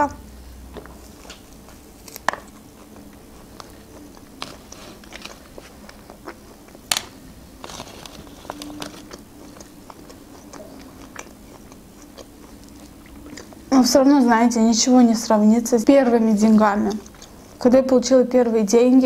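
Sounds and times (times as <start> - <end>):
chewing meat: 0.8 - 14.0, 15.9 - 17.8.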